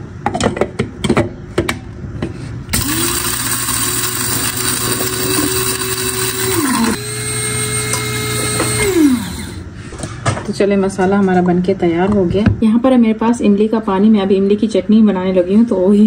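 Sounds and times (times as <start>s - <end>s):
electric spice grinder whining: 2.7s - 9.7s.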